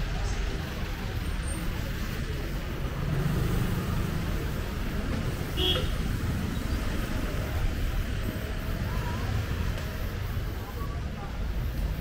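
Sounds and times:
traffic rumble: 0.0s - 12.0s
car horn beep: 5.5s - 6.0s.

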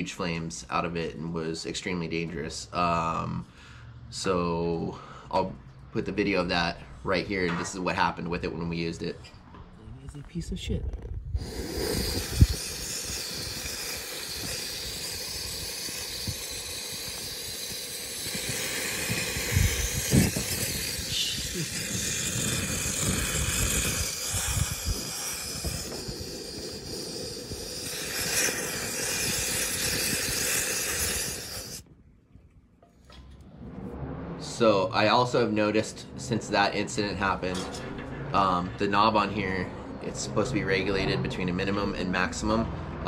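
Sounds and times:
low rumble of fire: 0.0s - 43.0s
gas hissing: 11.3s - 31.9s.

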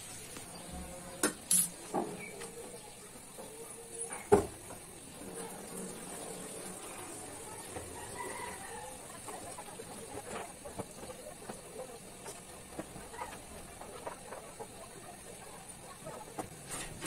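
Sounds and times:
water pouring into sink: 4.8s - 8.6s.

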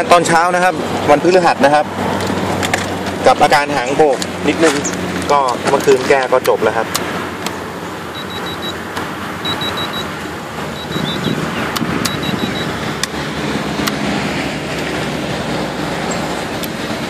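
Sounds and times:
steady background noise: 0.0s - 17.0s
short high electronic beeps: 8.1s - 8.8s, 9.4s - 10.1s, 10.7s - 11.4s, 12.0s - 12.7s.

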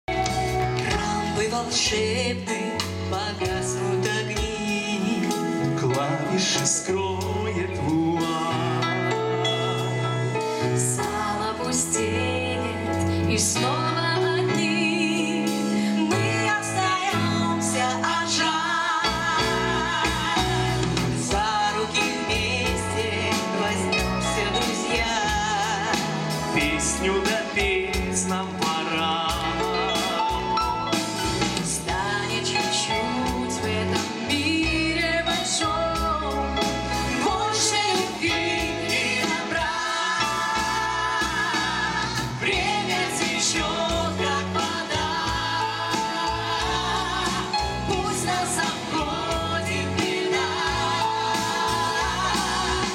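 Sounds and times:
bass guitar: 0.0s - 52.9s
drum kit: 0.0s - 52.9s
keyboards: 0.0s - 52.9s
electric guitars: 0.1s - 52.9s
women singing with vibrato: 10.8s - 26.7s, 31.6s - 52.9s.

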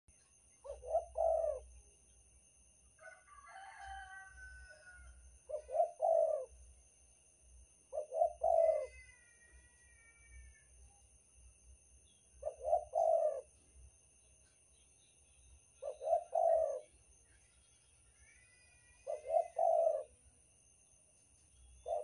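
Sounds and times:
dove cooing: 0.6s - 1.8s, 5.5s - 6.6s, 7.9s - 9.2s, 12.4s - 13.5s, 15.8s - 16.9s, 19.0s - 20.2s.

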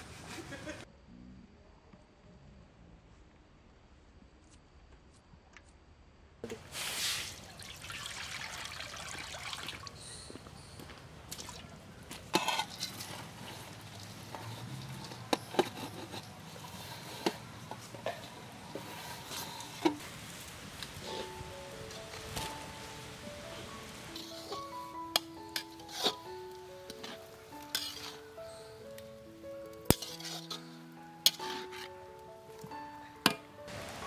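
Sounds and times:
food hissing in wok: 6.7s - 7.4s.

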